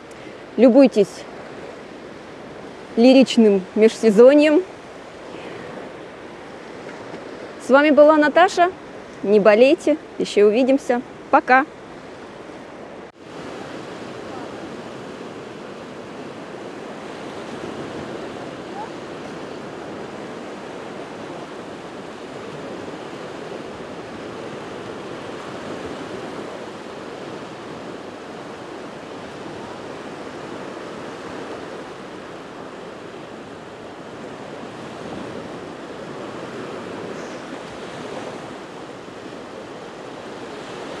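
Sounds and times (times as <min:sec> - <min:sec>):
small waves washing on sand: 0:00.0 - 0:41.0.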